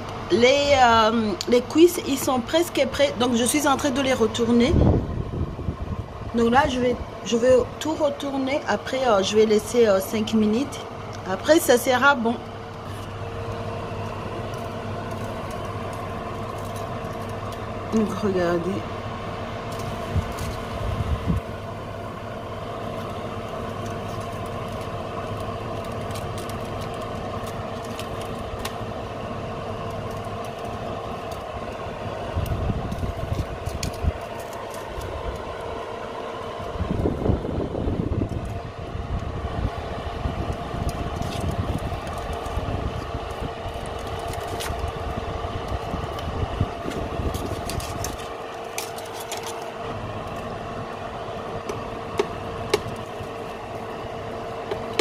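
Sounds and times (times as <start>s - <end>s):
oven fan humming: 0.0s - 55.0s
chicken crackling while roasting: 7.0s - 55.0s
tongs knocking and scraping: 46.9s - 49.7s.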